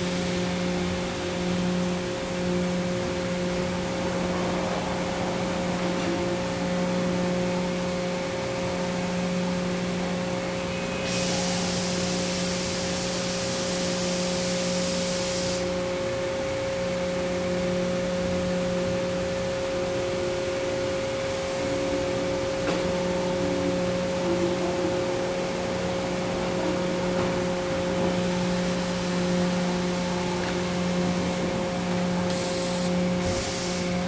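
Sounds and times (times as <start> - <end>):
machine hum and whine: 0.0 - 34.0
compressed air hiss: 11.0 - 15.8, 32.3 - 34.0.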